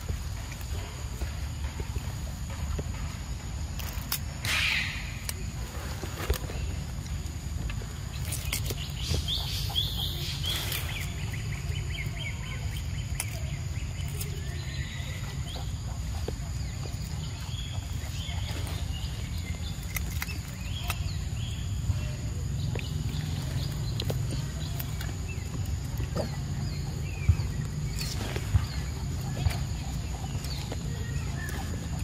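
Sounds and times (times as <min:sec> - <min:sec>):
low outdoor rumble: 0:00.0 - 0:32.0
small animal chirping: 0:08.2 - 0:32.0.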